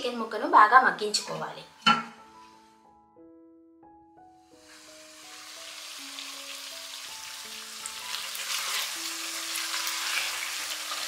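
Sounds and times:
chicken sizzling in oil: 4.4 - 11.0.

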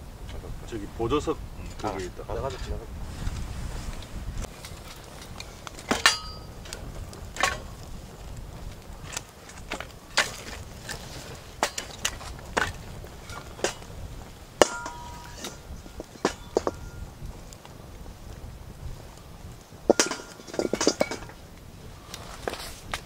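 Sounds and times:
dishes and utensils clinking: 4.6 - 6.6, 14.6 - 17.0, 19.9 - 21.4.

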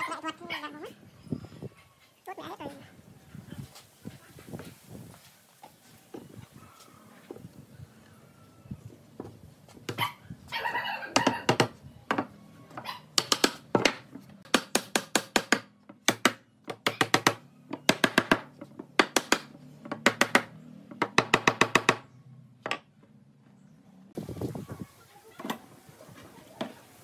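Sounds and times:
hammer striking wood frame: 13.2 - 22.9.

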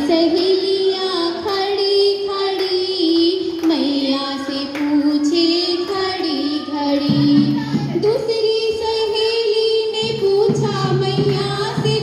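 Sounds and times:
women singing into a microphone: 0.0 - 12.0
handclaps: 0.3 - 6.0
dholak drum: 4.8 - 9.2, 9.8 - 12.0.

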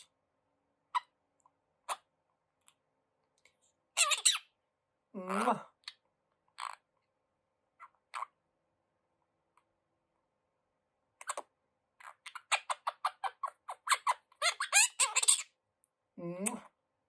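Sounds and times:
parrot chirping and clicking: 11.2 - 15.4.

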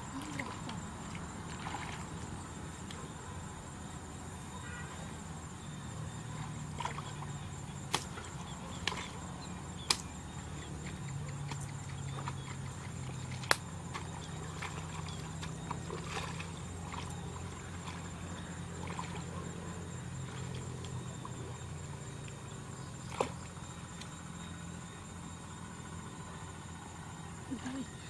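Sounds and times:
steady low hum: 0.0 - 28.0
hoe chopping into mud: 7.9 - 9.1.

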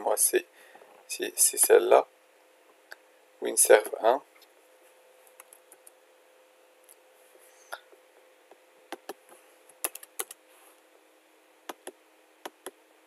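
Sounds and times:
faint steady hum: 0.0 - 13.0
computer mouse clicks: 8.9 - 10.4.

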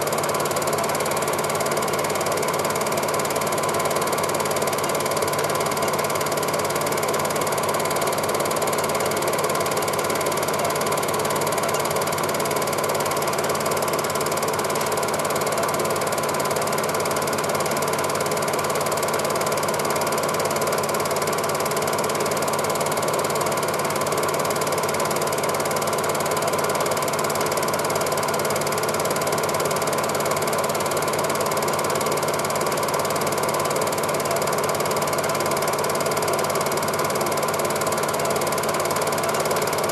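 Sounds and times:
film projector running: 0.0 - 39.9.

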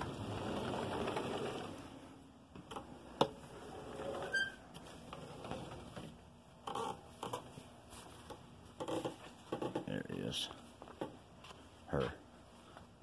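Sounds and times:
sliding glass door rumbling: 0.0 - 6.2
high squeak: 4.2 - 4.6.

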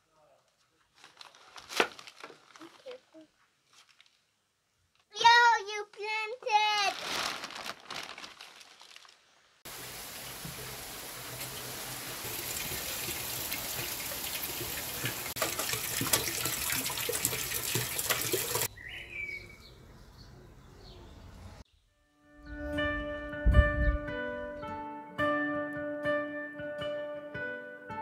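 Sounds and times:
rain falling steadily: 9.6 - 18.7
bird chirping: 18.7 - 22.8.

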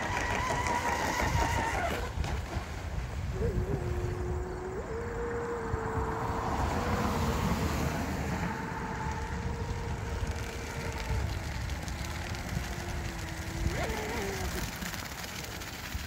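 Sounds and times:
wind rumble on microphone: 0.0 - 16.0
electric motor high whine: 3.3 - 15.6.

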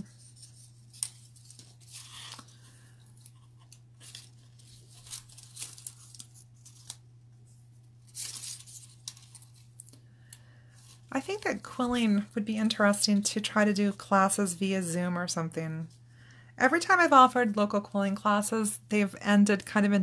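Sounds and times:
paper strips rustling and scraping: 0.0 - 10.0.

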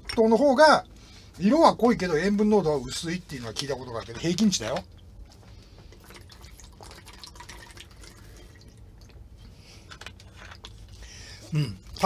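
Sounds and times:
steady low hum: 0.0 - 12.0
liquid sloshing in bottle: 3.0 - 11.2
person gulping: 5.4 - 12.0.

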